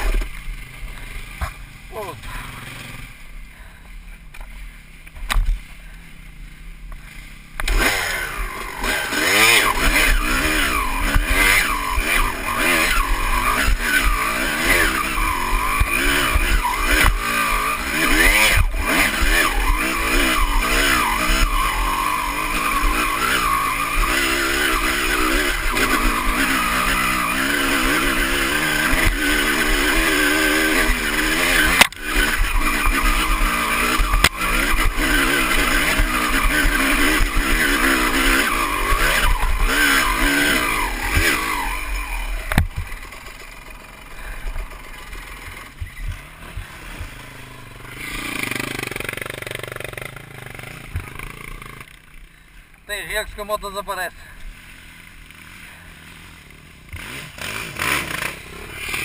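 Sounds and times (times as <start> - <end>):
dirt bike engine revving: 0.0 - 3.8, 5.5 - 59.0.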